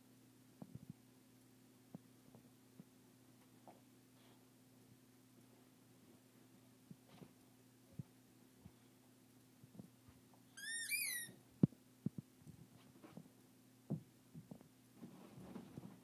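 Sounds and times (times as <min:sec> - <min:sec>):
puppy whining: 0:10.6 - 0:11.4
soft knocks and rustles on bed: 0:13.9 - 0:16.0.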